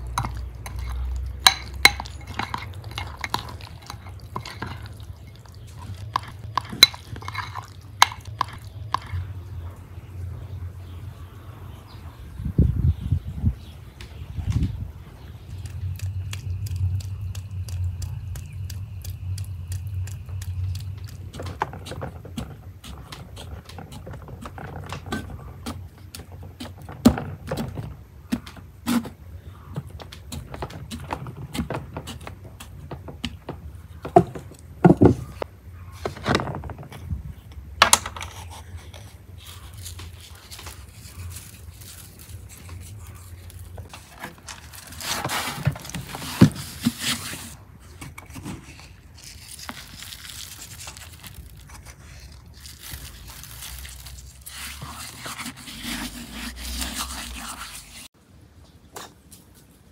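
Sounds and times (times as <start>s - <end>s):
knife and bones scraping metal tray: 0.0s - 9.2s, 53.9s - 58.1s
low hum: 0.0s - 26.1s
regular ticking: 15.4s - 26.8s
salt rubbing rustle: 38.3s - 47.6s, 48.6s - 58.1s.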